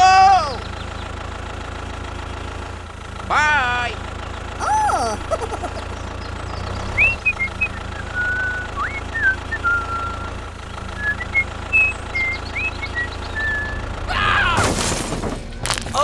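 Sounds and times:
tractor engine idling: 0:00.0 - 0:16.0.

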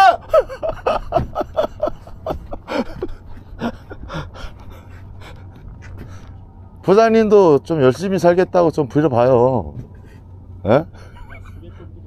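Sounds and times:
men laughing: 0:00.0 - 0:06.3, 0:10.0 - 0:12.0.

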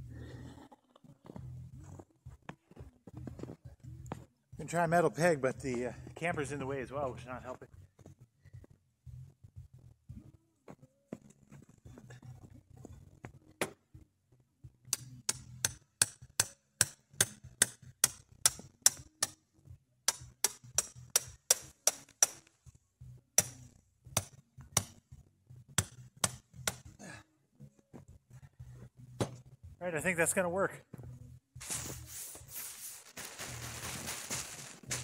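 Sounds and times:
hammer striking metal tent peg: 0:14.9 - 0:19.4, 0:20.1 - 0:22.5, 0:23.4 - 0:23.6, 0:24.2 - 0:24.9, 0:25.8 - 0:26.9.

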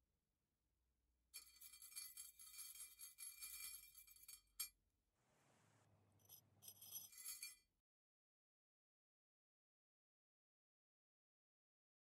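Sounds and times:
metal rings clinking: 0:01.4 - 0:04.7, 0:06.2 - 0:07.6.

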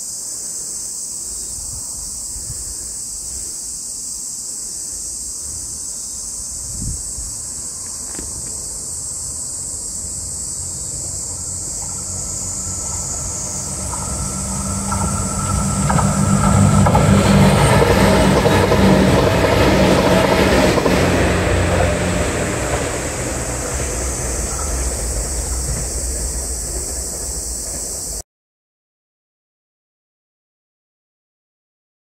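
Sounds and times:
diesel railcar engine humming: 0:06.3 - 0:28.2
wheels rumbling on rail: 0:06.3 - 0:28.2.

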